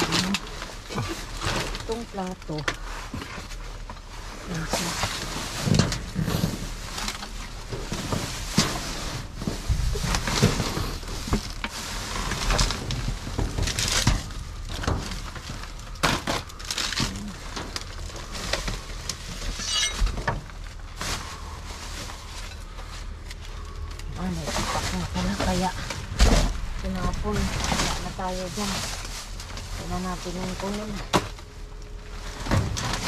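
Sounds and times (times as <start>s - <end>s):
plastic bags and cardboard rustling: 0.0s - 33.0s
hard items knocking and clattering: 19.5s - 20.5s.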